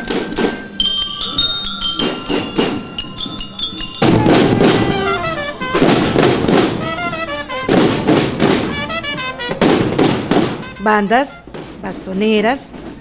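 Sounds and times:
bell-like metal notes: 0.0s - 8.1s
marching band drums: 2.0s - 13.0s.

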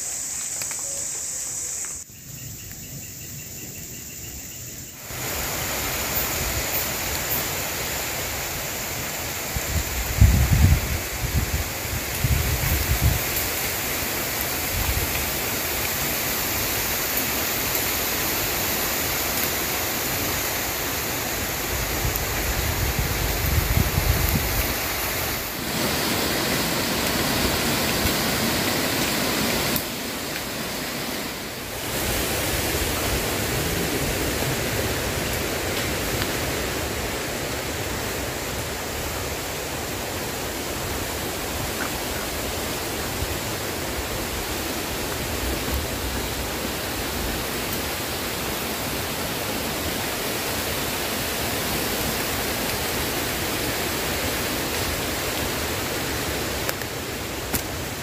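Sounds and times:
wind rushing through treetops: 0.0s - 58.0s
wind buffeting microphone: 9.6s - 13.5s, 21.4s - 28.6s.

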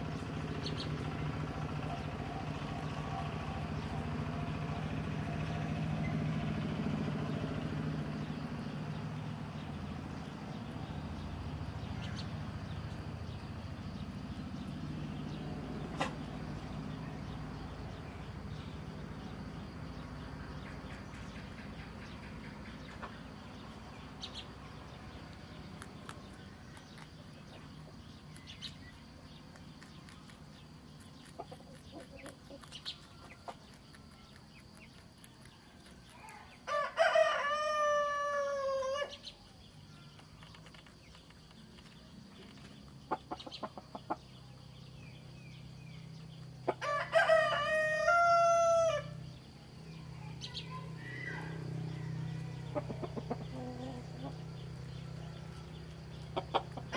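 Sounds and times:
rooster crowing: 35.5s - 39.2s, 46.7s - 49.2s, 51.0s - 55.8s.

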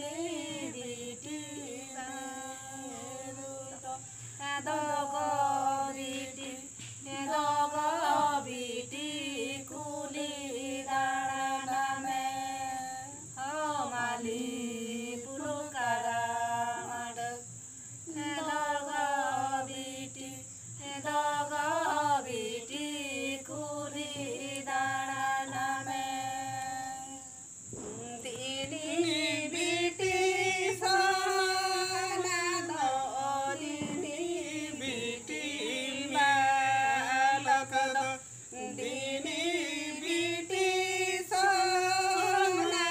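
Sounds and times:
group of women singing unaccompanied: 0.0s - 42.9s.

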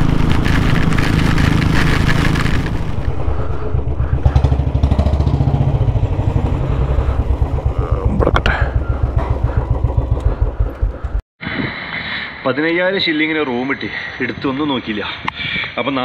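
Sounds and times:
motorcycle engine: 0.0s - 11.2s.

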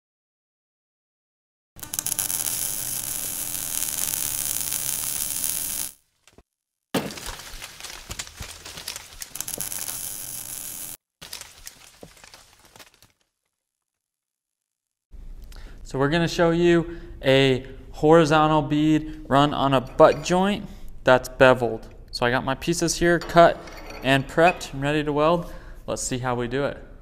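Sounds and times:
welding arc crackling: 1.8s - 6.0s, 8.9s - 11.0s.

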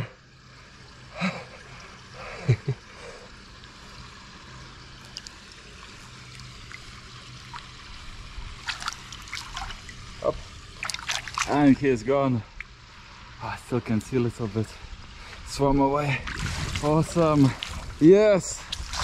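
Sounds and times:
shallow water trickling: 0.3s - 19.0s
fish splashing in water: 5.0s - 11.6s, 18.6s - 19.0s.

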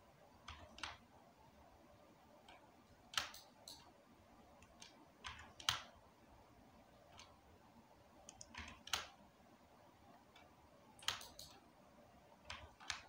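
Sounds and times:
mouse and keyboard clicks: 0.4s - 1.0s, 2.4s - 3.9s, 4.6s - 6.0s, 7.1s - 7.4s, 8.2s - 9.2s, 10.3s - 11.6s, 12.4s - 13.0s.

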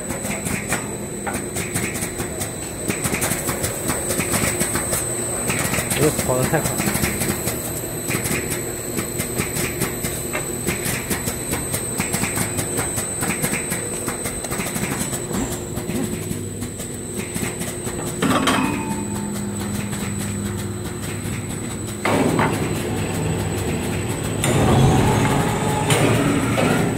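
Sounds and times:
belt sander running: 19.1s - 26.9s.

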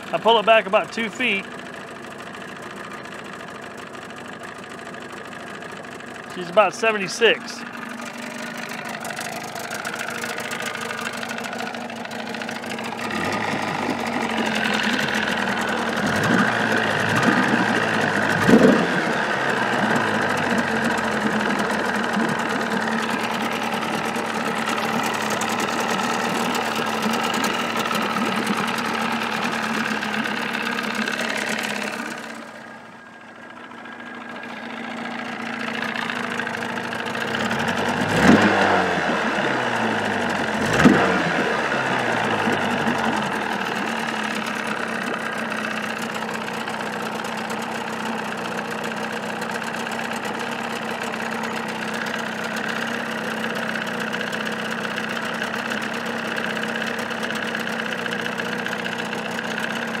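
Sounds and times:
outboard motor idling: 0.0s - 60.0s.

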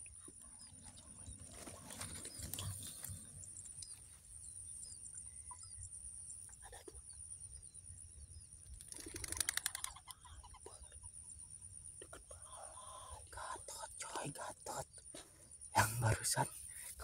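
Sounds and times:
faint bird chirps: 0.0s - 17.0s
wings clattering: 8.8s - 10.0s.

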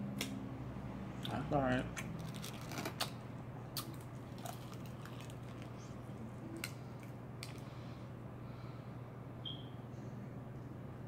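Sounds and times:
chewing crispy chicken: 3.8s - 7.6s.

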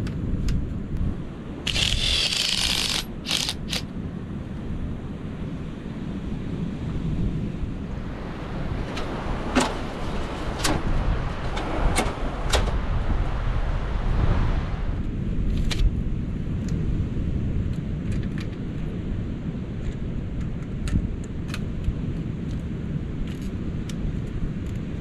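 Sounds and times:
wind rumble on microphone: 0.0s - 25.0s
camp gear clacking: 1.7s - 3.8s.

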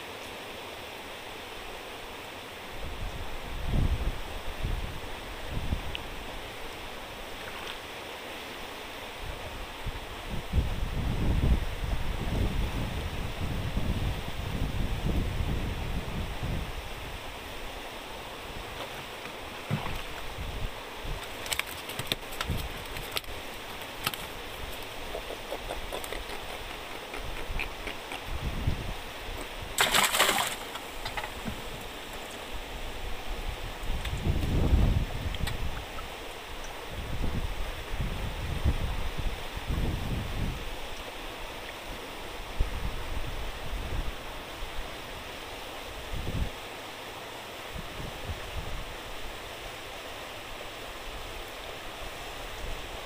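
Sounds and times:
wind: 0.0s - 53.0s
water rushing: 4.2s - 10.4s, 15.1s - 37.9s
water washing: 21.1s - 32.5s.

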